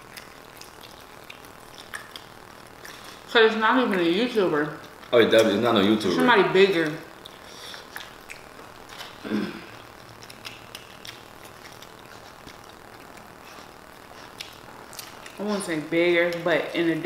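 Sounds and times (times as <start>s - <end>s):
chips crunching and chewing: 0.0s - 3.2s, 9.9s - 15.4s
mouth noises and clicks: 10.2s - 15.5s.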